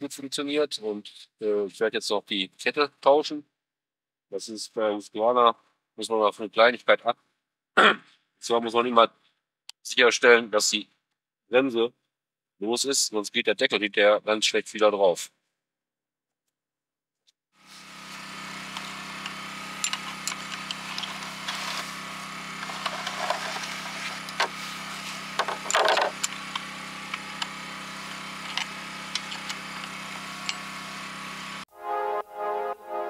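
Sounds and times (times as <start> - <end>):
saw chain clicking and rattling: 19.2 - 21.9, 22.6 - 24.5, 25.4 - 27.6, 28.4 - 30.7.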